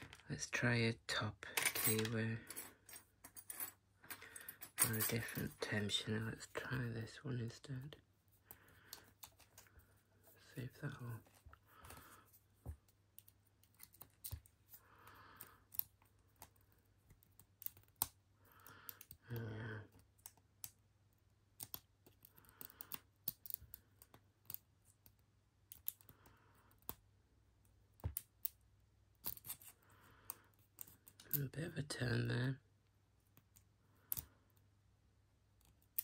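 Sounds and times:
soft breaths: 0:08.3 - 0:12.8.

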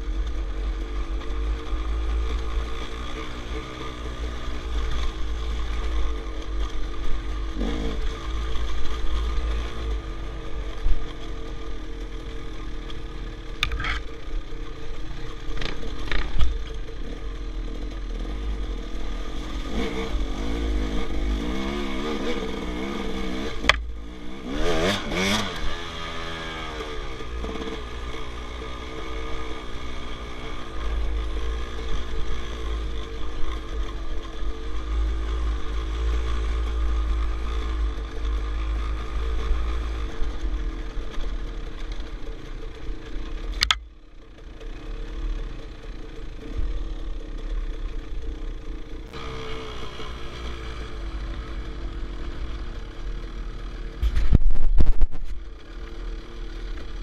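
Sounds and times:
dirt bike engine revving: 0:00.0 - 0:43.8, 0:48.6 - 0:57.0
wind rumble on microphone: 0:54.0 - 0:55.4.

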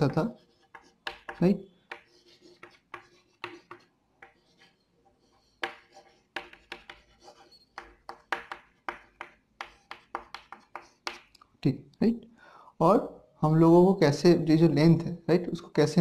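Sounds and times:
chalk writing on blackboard: 0:00.0 - 0:11.3.

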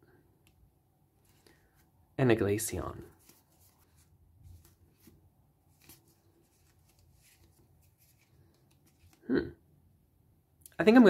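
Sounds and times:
cards rustling and flicking: 0:01.2 - 0:02.0, 0:03.0 - 0:09.2.

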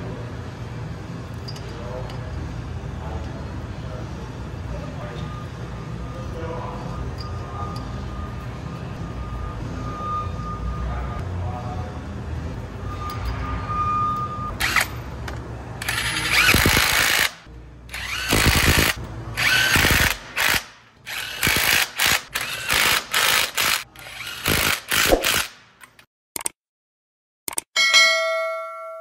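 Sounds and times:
impact wrench bursts: 0:14.6 - 0:15.0, 0:15.8 - 0:25.6.

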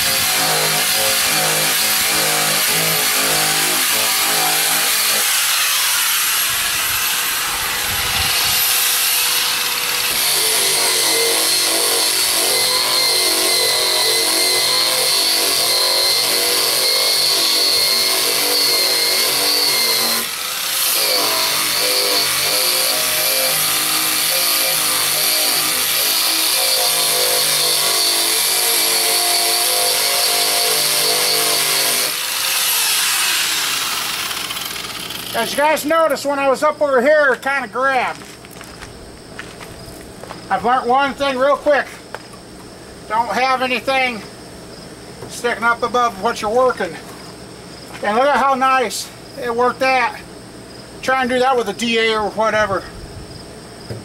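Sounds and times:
abrasive wheel grinding paint: 0:00.0 - 0:35.8.

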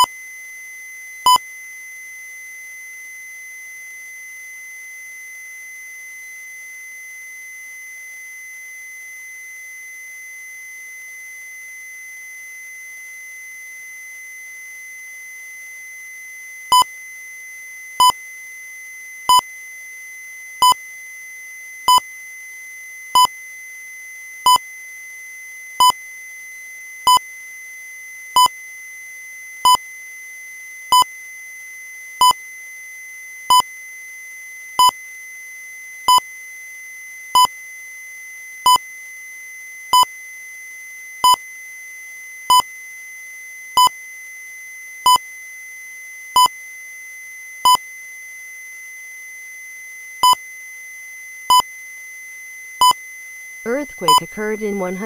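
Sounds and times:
short electronic beeps: 0:51.5 - 0:51.7, 0:52.8 - 0:53.0, 0:53.7 - 0:55.0
faint high tone: 0:53.7 - 0:55.0.

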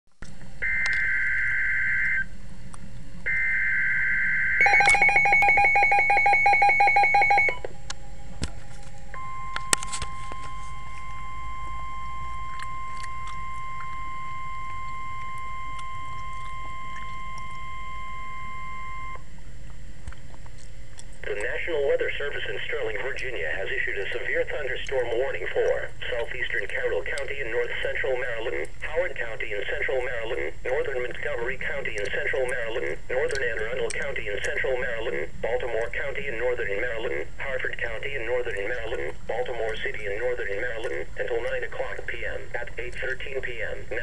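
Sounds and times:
steady warning alarm tone: 0:00.6 - 0:02.4, 0:03.2 - 0:19.3
rapid pulsing alert beeps: 0:04.6 - 0:07.6.

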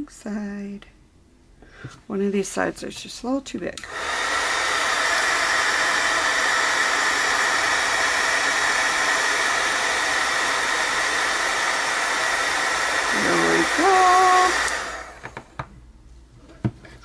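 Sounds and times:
heat gun blowing hiss and whine: 0:03.8 - 0:15.6.

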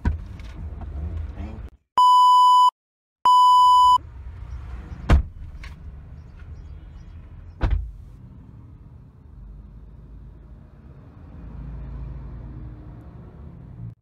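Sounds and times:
car rumbling: 0:00.0 - 0:01.8, 0:03.6 - 0:14.0
censor bleep tone: 0:02.0 - 0:04.0.

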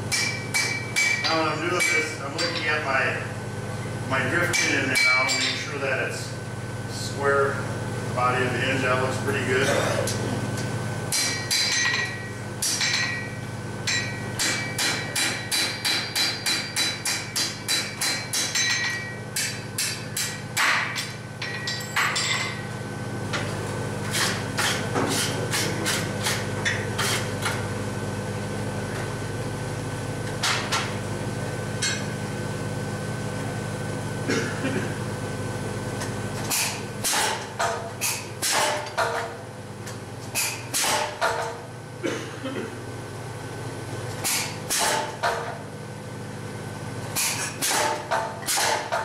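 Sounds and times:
steady hum: 0:00.0 - 0:49.0
hammer striking iron on anvil: 0:00.1 - 0:02.7, 0:04.5 - 0:05.6, 0:11.1 - 0:22.6, 0:31.8 - 0:32.1, 0:36.5 - 0:39.3, 0:40.4 - 0:41.6, 0:44.2 - 0:45.6, 0:47.2 - 0:49.0
anvil ringing: 0:11.1 - 0:22.6.

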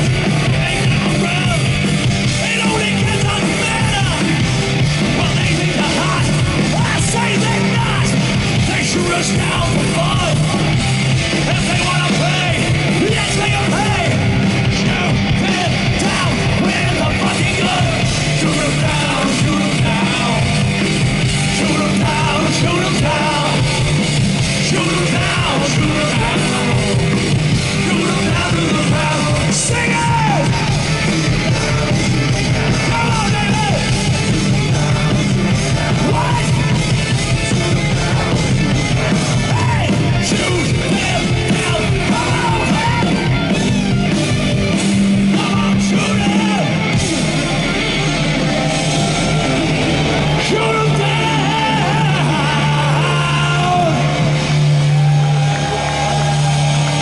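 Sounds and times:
man singing: 0:00.0 - 0:10.6, 0:11.4 - 0:30.7, 0:31.4 - 0:43.5, 0:45.2 - 0:46.9
bass guitar: 0:00.0 - 0:57.0
distorted electric guitar: 0:00.0 - 0:57.0
drums: 0:00.0 - 0:57.0.

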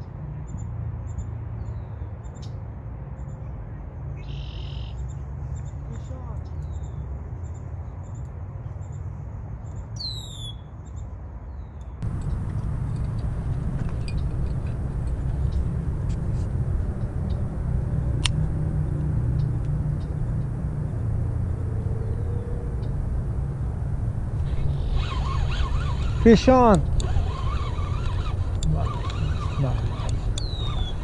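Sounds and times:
wind rumble: 0:12.0 - 0:31.0
sharp clicks: 0:25.0 - 0:31.0
bird calling falling notes: 0:27.1 - 0:31.0.

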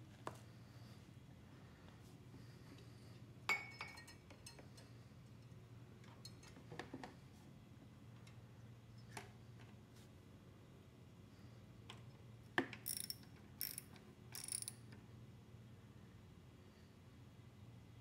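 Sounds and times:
socket ratchet clicking: 0:12.8 - 0:14.8.

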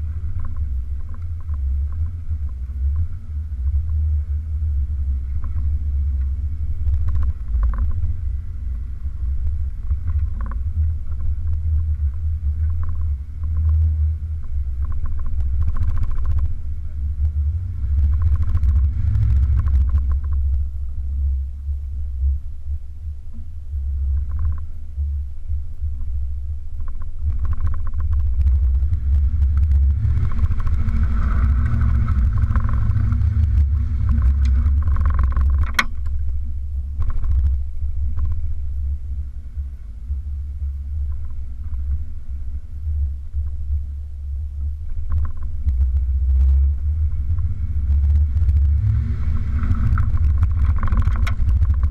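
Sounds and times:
engine and drivetrain rumble: 0:00.0 - 0:51.9
knocks and rattles: 0:26.8 - 0:36.2, 0:49.6 - 0:51.9
sharp click: 0:34.1 - 0:36.2.

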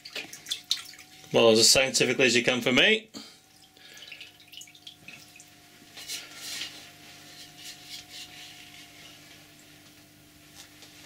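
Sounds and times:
faint steady hum: 0:00.0 - 0:11.0
axe head scraping: 0:06.0 - 0:09.2.

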